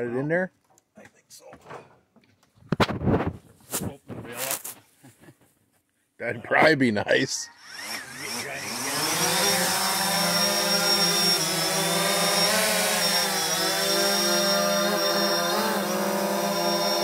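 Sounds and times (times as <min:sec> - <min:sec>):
drone propellers whining: 0:07.6 - 0:17.0.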